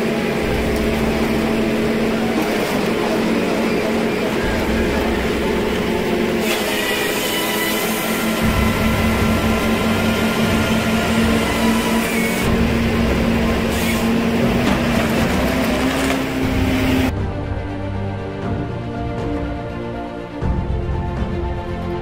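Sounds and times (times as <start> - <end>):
harvester engine and hydraulics whine: 0.0 - 17.1.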